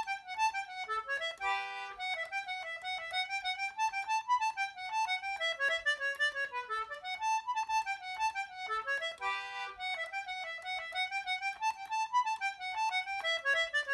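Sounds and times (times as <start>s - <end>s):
lively jig on solo instrument: 0.0s - 13.9s.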